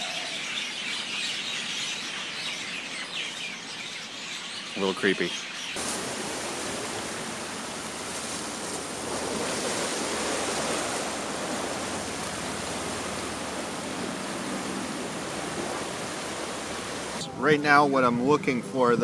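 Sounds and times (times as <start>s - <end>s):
surf washing over rocks: 5.8s - 17.2s.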